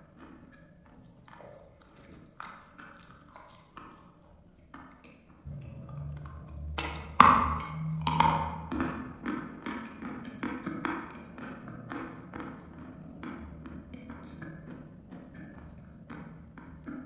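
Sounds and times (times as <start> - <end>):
chewing crunches: 0.0 - 5.2
chalk cracking when bitten: 1.3 - 4.3.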